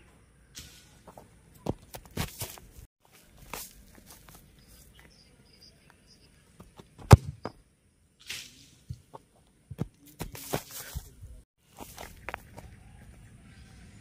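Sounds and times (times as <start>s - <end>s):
running steps on grass: 1.6s - 5.2s, 9.7s - 13.2s
boot kicking ball: 6.7s - 7.6s.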